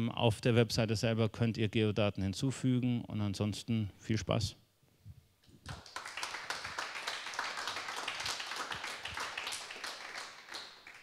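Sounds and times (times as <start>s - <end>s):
audience applauding: 5.7s - 11.0s.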